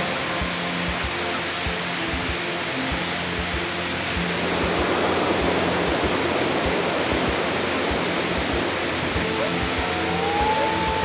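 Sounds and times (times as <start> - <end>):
soft background music: 0.0 - 11.0
waterfall rushing into pool: 0.0 - 11.0
held musical note sliding up: 4.2 - 11.0.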